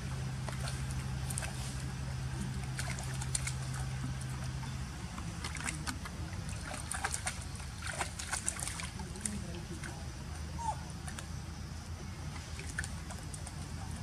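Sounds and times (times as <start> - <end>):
low hum: 0.0 - 14.0
splashing in muddy water: 0.0 - 14.0.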